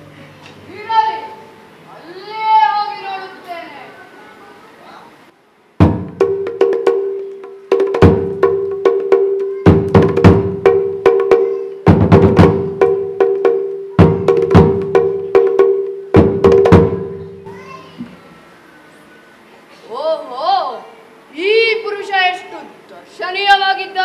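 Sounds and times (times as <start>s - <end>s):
drums: 5.8s - 18.3s.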